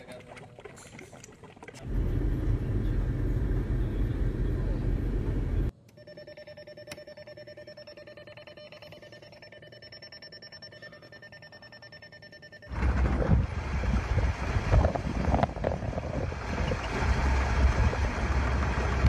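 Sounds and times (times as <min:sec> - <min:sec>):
vehicle and wind rumble: 0:01.8 - 0:05.7, 0:12.7 - 0:19.0
car warning chime beeping: 0:05.9 - 0:12.7.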